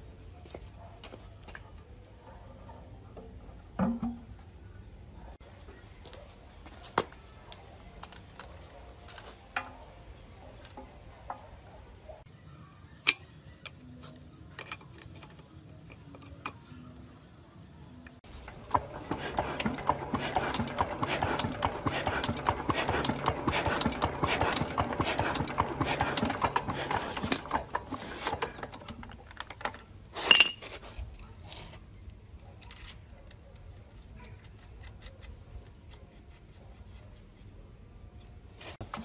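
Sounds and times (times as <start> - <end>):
metal parts clicking and rattling: 18.4 - 31.4, 32.4 - 33.5
sharp metallic clink: 30.2 - 30.6.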